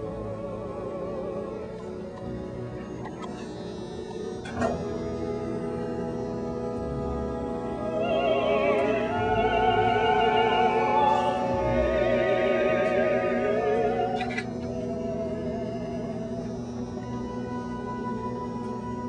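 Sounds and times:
orchestral held notes: 0.0 - 19.0
operatic singing: 7.6 - 15.4.

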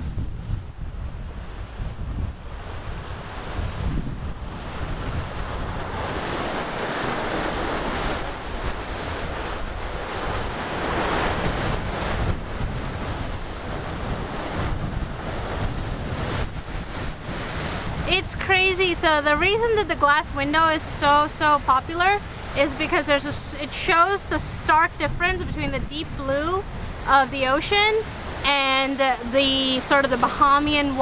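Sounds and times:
ocean surf against rocks: 0.0 - 31.0
wind buffeting microphone: 0.0 - 31.0.

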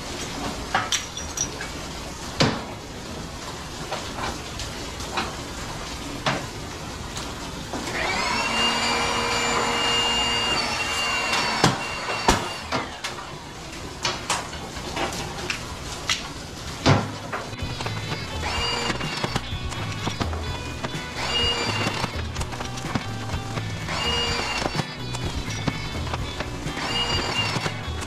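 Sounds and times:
metal parts clanking: 0.7 - 1.8
power tool motor spinning: 7.8 - 13.0, 17.7 - 28.0.

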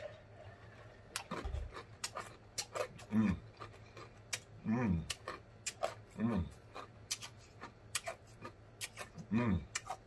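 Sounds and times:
man humming mmm: 3.0 - 3.4, 4.6 - 5.2, 9.2 - 9.8.

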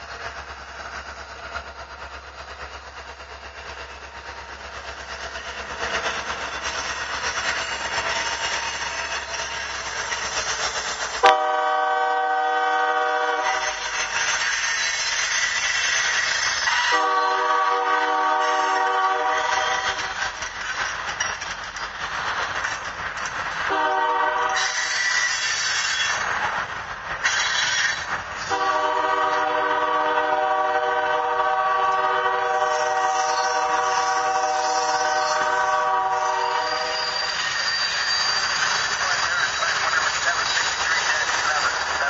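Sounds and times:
freight cars rolling on rails: 0.0 - 42.0
locomotive air horn: 11.2 - 13.8, 16.7 - 20.0, 23.7 - 24.8, 28.5 - 37.2.

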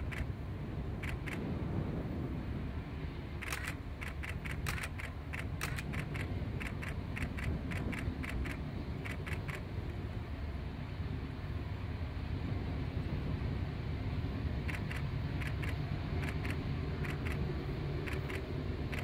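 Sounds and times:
low steady rumble: 0.0 - 19.0
camera shutter burst: 3.4 - 9.6.

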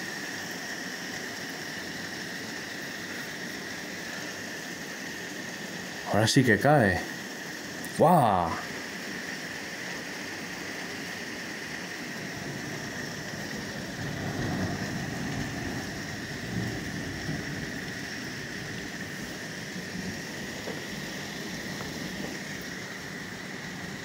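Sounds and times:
heavy rain falling: 0.0 - 24.0
low rumble: 12.3 - 22.6.

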